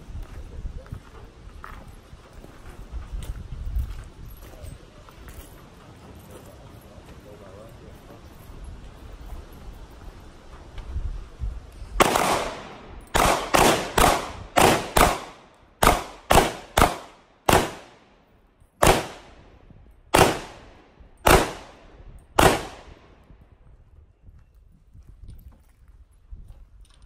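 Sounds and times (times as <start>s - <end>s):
handgun shots: 12.0s - 18.0s, 18.8s - 19.3s, 20.1s - 21.8s, 22.4s - 23.0s.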